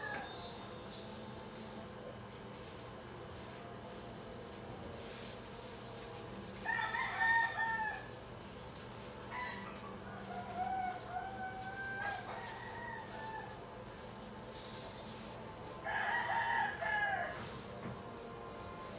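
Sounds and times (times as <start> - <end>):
rooster crowing: 0.0 - 0.5, 6.6 - 8.2, 9.2 - 13.8, 15.8 - 17.6
faint steady hum: 0.0 - 18.9.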